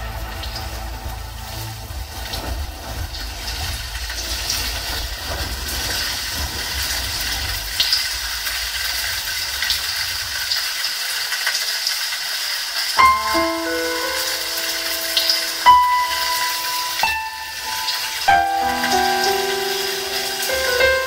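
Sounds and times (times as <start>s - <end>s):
low bass drone: 0.0s - 10.4s
hissing synth noise: 13.0s - 21.0s.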